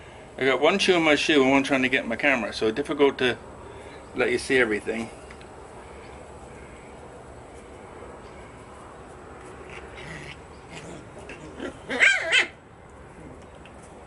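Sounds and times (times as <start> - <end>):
puppies yelping: 9.6 - 12.6.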